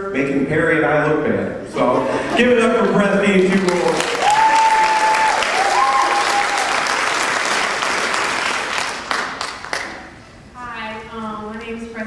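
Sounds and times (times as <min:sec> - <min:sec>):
audience applauding: 0:03.2 - 0:10.2.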